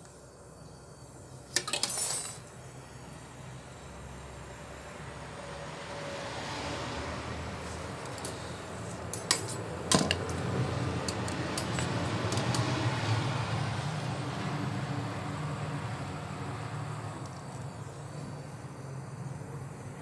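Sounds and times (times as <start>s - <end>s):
gas torch flame hissing: 0.0s - 20.0s.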